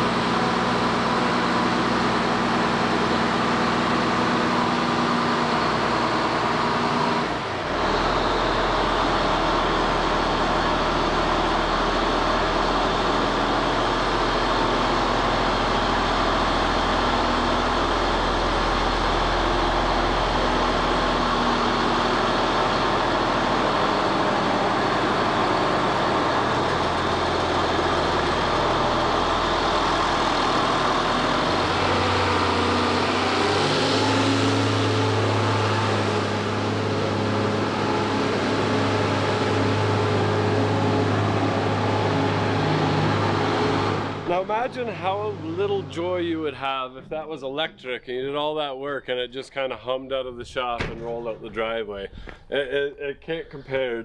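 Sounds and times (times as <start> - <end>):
tractor diesel engine running: 0.0 - 48.6.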